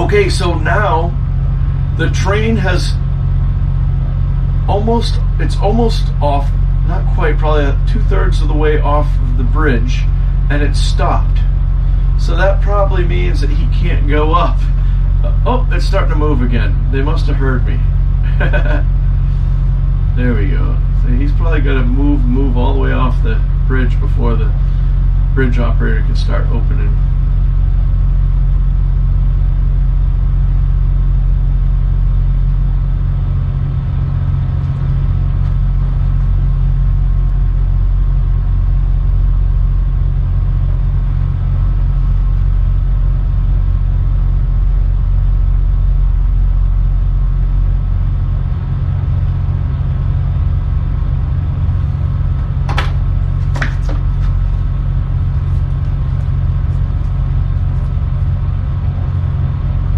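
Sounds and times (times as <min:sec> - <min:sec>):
diesel engines droning: 0:00.0 - 0:59.9
sharp knocks: 0:52.7 - 0:54.4.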